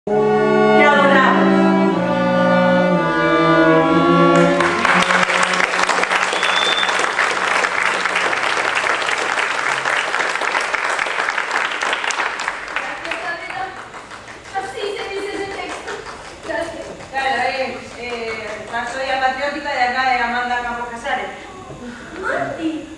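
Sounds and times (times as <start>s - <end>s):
music with held notes: 0.1s - 6.0s
audience applause: 4.3s - 19.1s.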